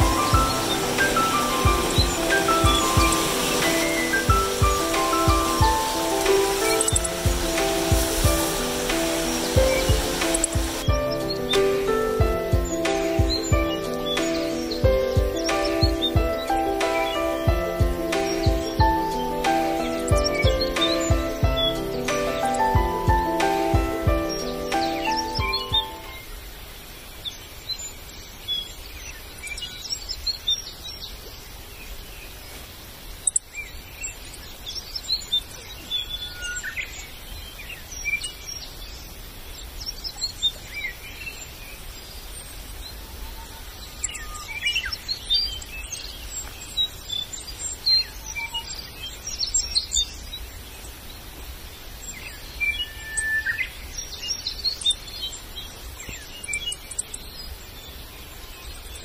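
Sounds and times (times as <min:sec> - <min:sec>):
birds chirping and calling: 0:00.0 - 0:26.3
steady background hiss: 0:00.0 - 0:59.0.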